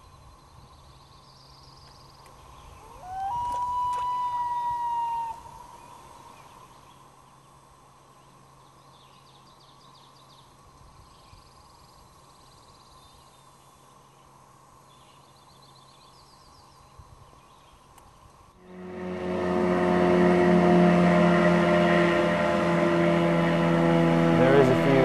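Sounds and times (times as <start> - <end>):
loon call: 3.0 - 5.4.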